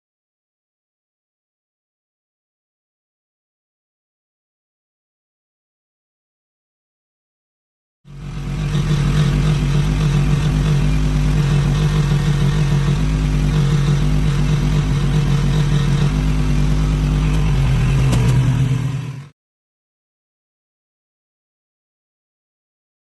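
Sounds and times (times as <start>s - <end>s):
engine running with low hum: 8.1s - 19.3s.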